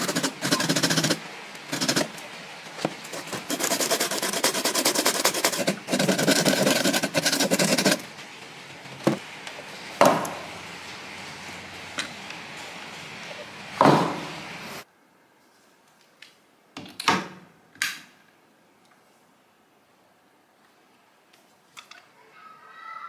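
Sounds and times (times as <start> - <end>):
metal file rasping on plastic: 0.0 - 2.1, 3.0 - 8.1.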